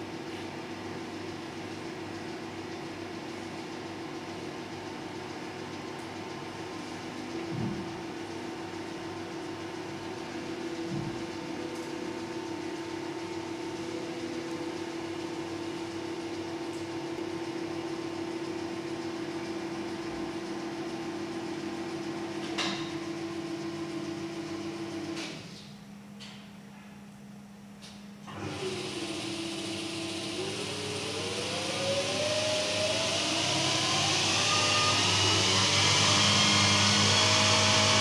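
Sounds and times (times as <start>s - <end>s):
electric motor and gear hum: 28.3s - 38.0s.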